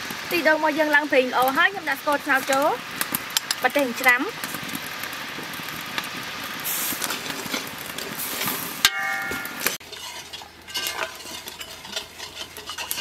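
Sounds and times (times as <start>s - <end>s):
metal spoon scraping a pot: 9.4s - 13.0s.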